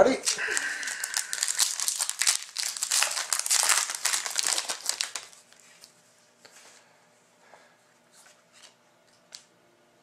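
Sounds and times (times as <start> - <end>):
foil wrapper crinkling and tearing: 0.2 - 5.9.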